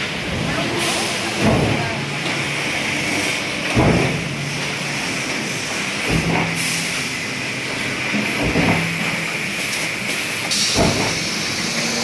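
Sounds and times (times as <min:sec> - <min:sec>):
machine hiss and hum: 0:02.4 - 0:12.0.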